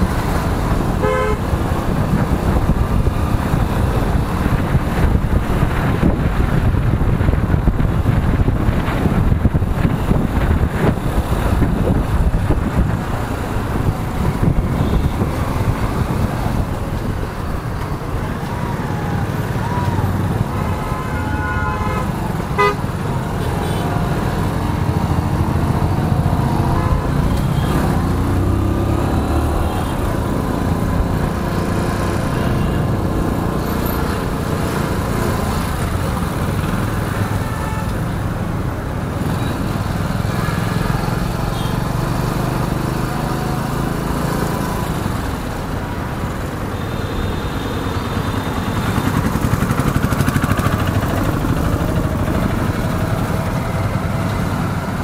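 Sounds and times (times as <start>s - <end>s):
road noise: 0.0s - 55.0s
vehicle horns honking: 1.0s - 1.6s, 20.5s - 24.0s, 37.2s - 38.0s, 41.5s - 41.8s
motorcycle engine rumble: 44.6s - 55.0s.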